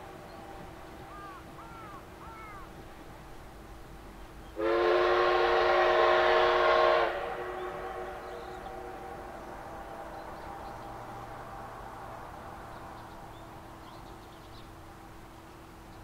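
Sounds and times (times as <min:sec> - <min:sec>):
steam locomotive whistle blast: 0:04.6 - 0:09.0.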